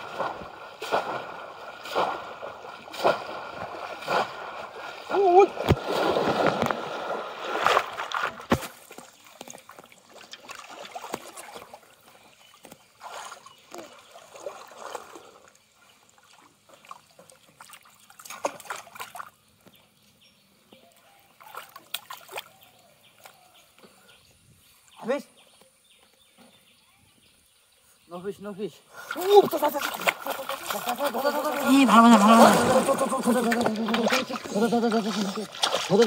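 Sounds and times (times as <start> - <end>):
water splashing heavily: 0.0 - 11.9, 13.0 - 15.5, 29.0 - 36.0
water sloshing and dribbling: 0.0 - 19.9, 20.8 - 23.6, 29.0 - 36.0.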